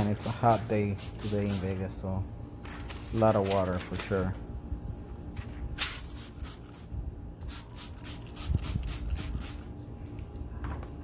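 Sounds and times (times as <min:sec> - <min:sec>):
spray bottle spritzing water: 0:06.0 - 0:09.7.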